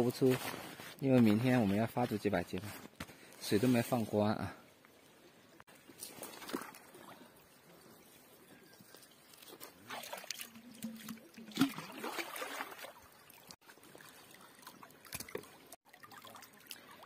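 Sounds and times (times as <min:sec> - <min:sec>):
pond water splashing: 0:05.7 - 0:08.4, 0:09.0 - 0:17.0.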